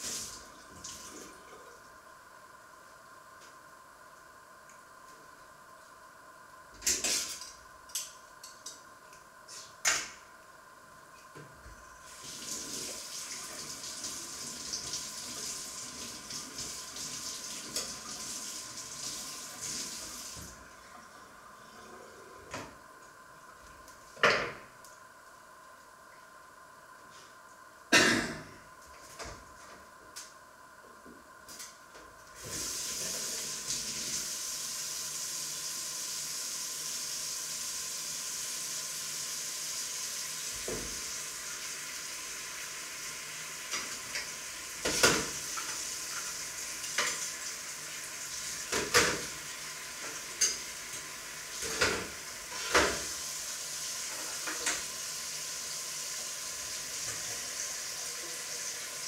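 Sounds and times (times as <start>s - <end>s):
food sizzling in a frying pan: 32.4s - 59.0s.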